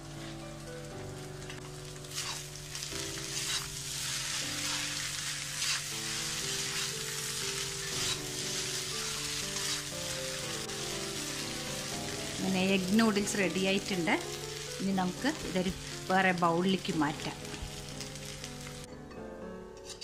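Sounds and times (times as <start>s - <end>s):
noodles sizzling in a pan: 0.0s - 18.9s
spatula scraping and tossing: 1.6s - 11.9s.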